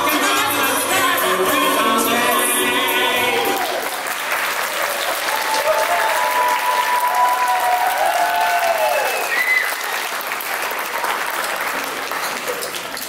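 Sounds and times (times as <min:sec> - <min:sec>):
audience applauding: 0:03.3 - 0:13.0
long drawn-out cheers: 0:03.4 - 0:10.1.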